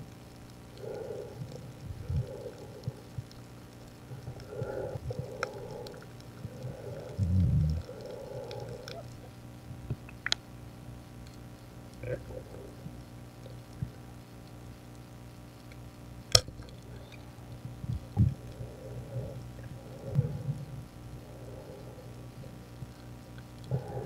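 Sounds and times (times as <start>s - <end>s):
watery underwater rumbles: 0.1s - 10.3s, 16.4s - 24.0s.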